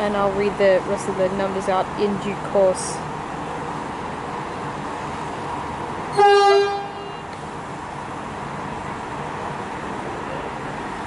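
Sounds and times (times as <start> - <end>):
steady background hum: 0.0 - 11.0
train horn toot: 6.1 - 7.3.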